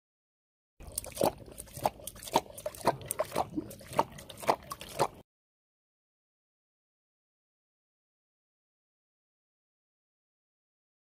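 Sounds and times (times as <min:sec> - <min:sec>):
tiger lapping water: 0:00.8 - 0:05.2.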